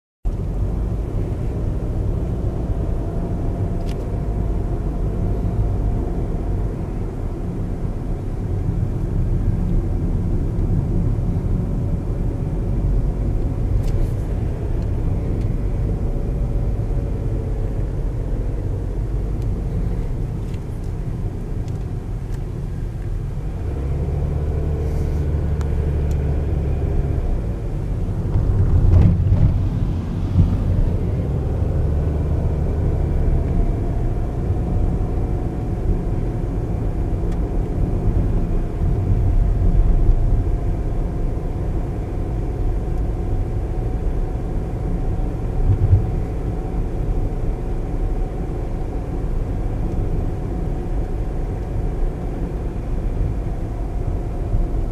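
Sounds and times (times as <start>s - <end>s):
car engine rumble: 0.2s - 54.9s
tyres on road: 0.3s - 54.9s
car bump: 28.3s - 30.8s.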